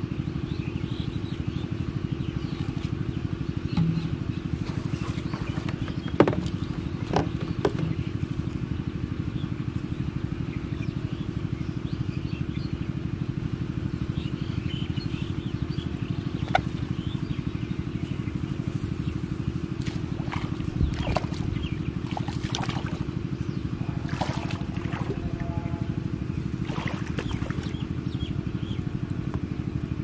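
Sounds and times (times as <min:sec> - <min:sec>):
small engine running: 0:00.0 - 0:30.0
sharp clicks and knocks: 0:03.7 - 0:04.2.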